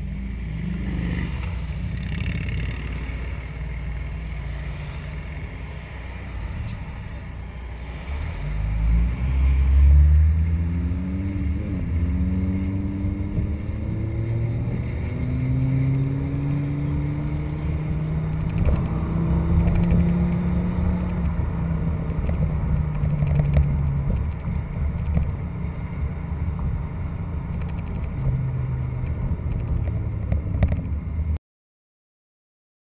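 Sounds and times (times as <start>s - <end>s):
car engine accelerating: 6.2s - 31.4s.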